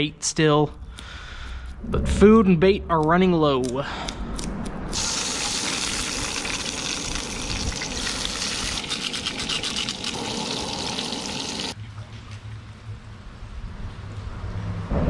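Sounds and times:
low hum: 0:00.0 - 0:15.0
fish sizzling in oil: 0:05.0 - 0:11.8.

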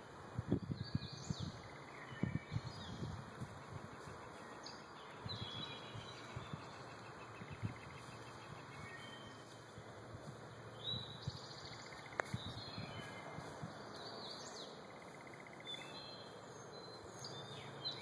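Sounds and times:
faint steady hiss: 0:00.0 - 0:18.0
small birds chirping: 0:00.0 - 0:18.0.

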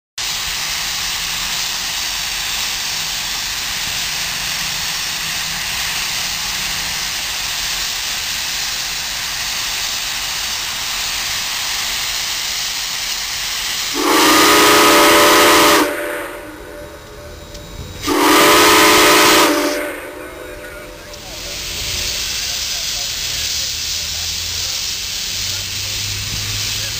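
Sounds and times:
steam locomotive hissing: 0:00.2 - 0:26.9
steam whistle blast: 0:13.8 - 0:17.4, 0:18.0 - 0:21.0.

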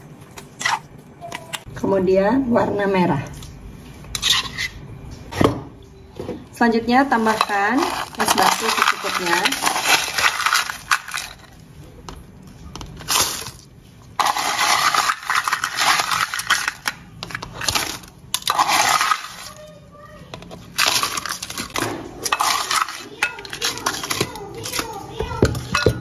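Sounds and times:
ice clattering and crunching: 0:07.1 - 0:11.6, 0:12.8 - 0:19.8, 0:20.4 - 0:26.0.

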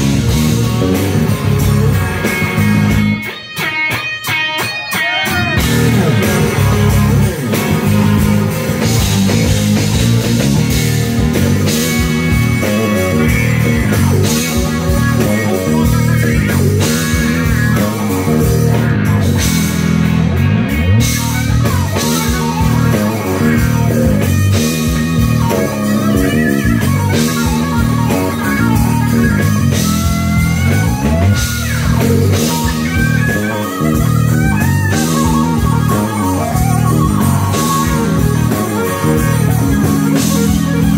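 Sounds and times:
drum kit: 0:00.0 - 0:40.9
electric guitar lead: 0:00.0 - 0:40.9.

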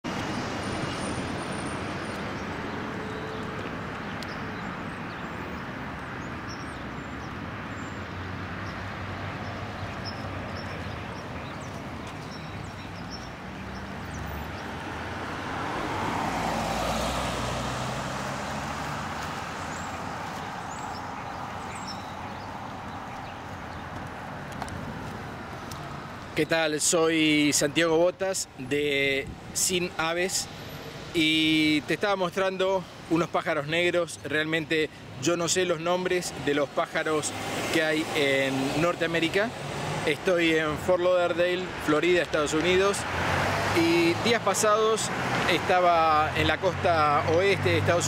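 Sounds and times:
street traffic noise: 0:00.0 - 0:48.0
vehicle passing: 0:07.6 - 0:26.4, 0:36.3 - 0:40.8, 0:41.6 - 0:48.0.

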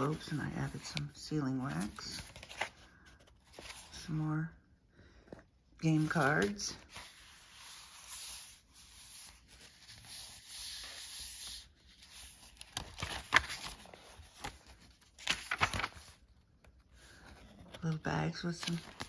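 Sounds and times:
paper rustling and crinkling: 0:00.0 - 0:04.2, 0:05.2 - 0:19.0
sharp paper crackles: 0:09.1 - 0:16.3, 0:17.6 - 0:19.0.

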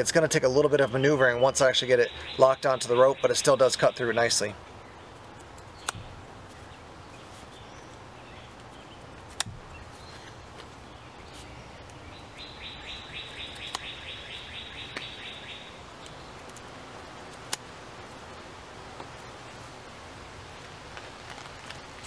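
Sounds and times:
bird chirping rapidly: 0:00.7 - 0:16.5
knife hook cutting rope clicks: 0:05.4 - 0:06.0, 0:13.5 - 0:13.9.

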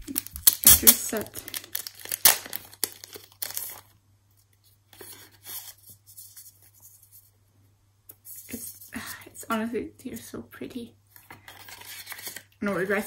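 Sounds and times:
plastic and paper crinkling: 0:00.0 - 0:06.7, 0:11.2 - 0:13.0.

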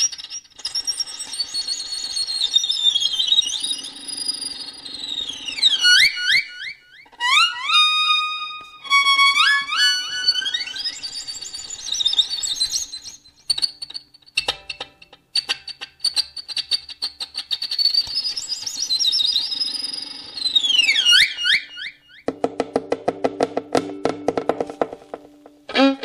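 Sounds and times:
high squeaky violin: 0:05.0 - 0:14.5, 0:15.4 - 0:22.2, 0:25.7 - 0:26.0.

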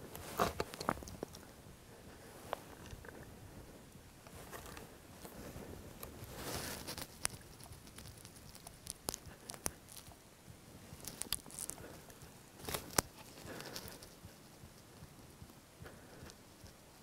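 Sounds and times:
faint rustling: 0:00.0 - 0:17.0
small clicks and ticks: 0:00.1 - 0:01.5, 0:04.2 - 0:10.2, 0:10.9 - 0:17.0.

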